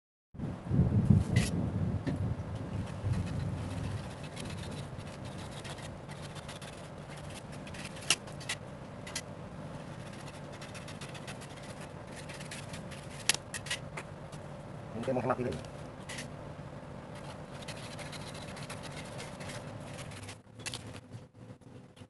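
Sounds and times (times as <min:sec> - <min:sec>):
low background hum: 0:00.4 - 0:22.0
knife cutting wax candle: 0:10.0 - 0:13.8.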